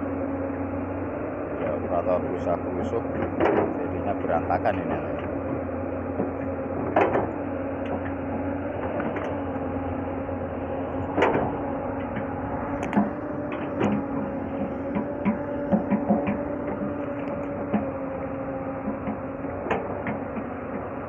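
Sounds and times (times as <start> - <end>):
excavator diesel engine running: 0.0 - 21.0.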